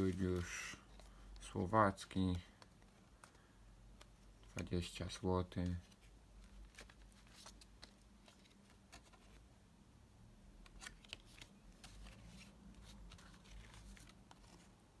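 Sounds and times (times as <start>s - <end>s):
paper rustling: 5.5s - 9.4s, 10.6s - 14.8s.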